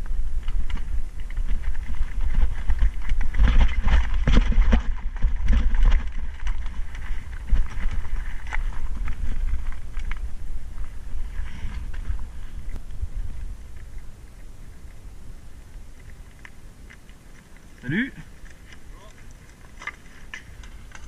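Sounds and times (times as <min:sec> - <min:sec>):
bike clattering: 0:00.0 - 0:21.0
tyres crunching on stones: 0:00.0 - 0:21.0
wind rumble on microphone: 0:00.0 - 0:21.0.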